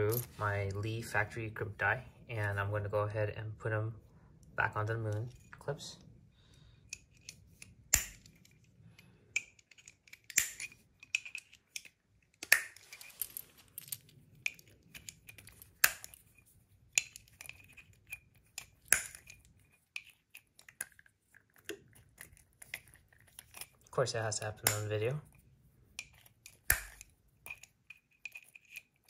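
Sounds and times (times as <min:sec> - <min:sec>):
brass cases clinking: 0:00.0 - 0:00.8, 0:09.3 - 0:16.3
sharp metallic snaps: 0:24.6 - 0:25.0.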